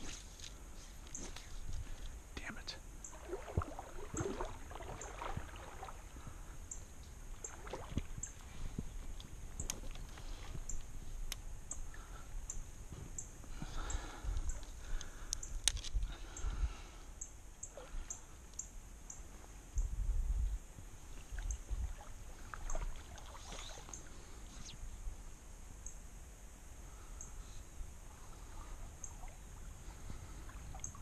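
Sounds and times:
water swishing: 3.1s - 6.6s, 7.3s - 8.8s, 21.1s - 24.4s.

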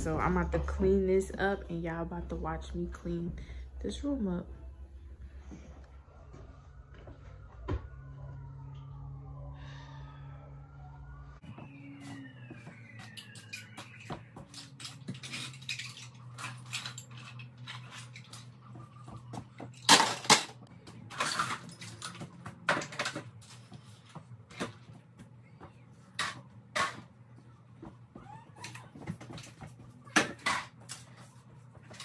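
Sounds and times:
low hum: 0.0s - 22.3s
toys clattering and knocking: 13.0s - 23.6s, 26.1s - 27.1s, 27.8s - 31.2s.

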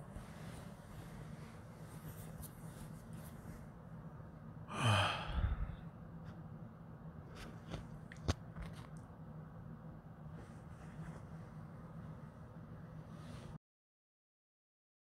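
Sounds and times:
person sighing: 4.7s - 5.9s.

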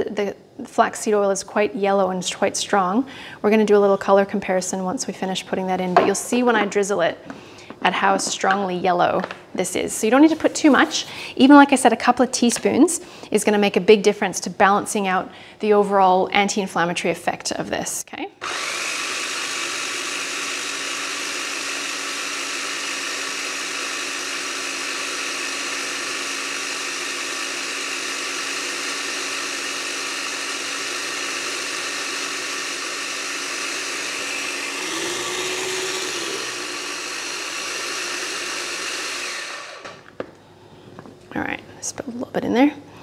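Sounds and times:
food processor motor running: 18.4s - 40.1s.

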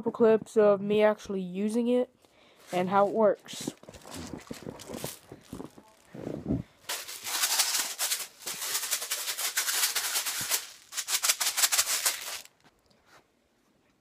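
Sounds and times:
tin can rattle shaken: 2.7s - 6.2s, 6.8s - 12.6s.

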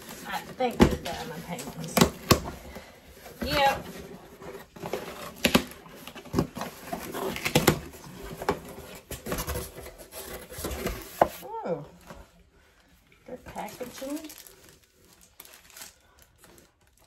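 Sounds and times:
cardboard scraping and knocking: 0.0s - 11.5s.

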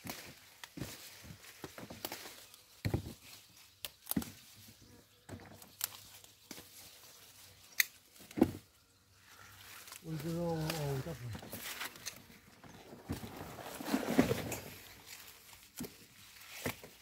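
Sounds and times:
pepper stems snapping: 3.8s - 4.6s, 5.5s - 6.8s, 7.7s - 8.4s, 9.7s - 11.0s.

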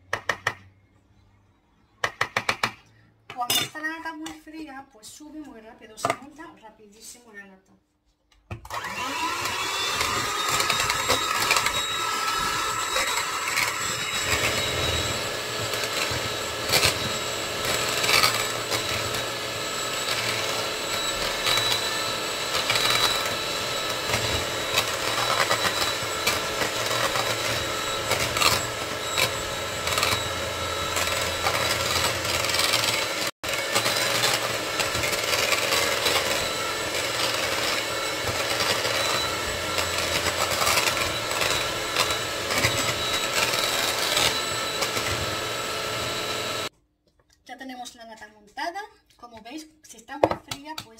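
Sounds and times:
electric hand mixer whining: 8.6s - 46.7s.

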